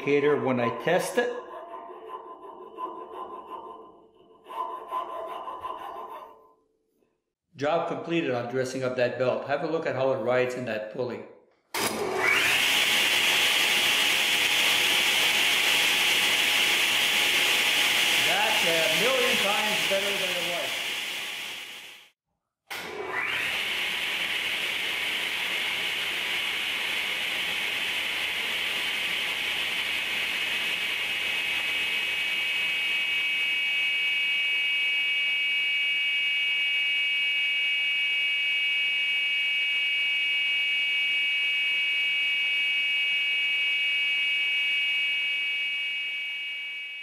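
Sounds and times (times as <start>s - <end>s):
table saw whirring: 11.8s - 22.1s, 22.7s - 36.9s.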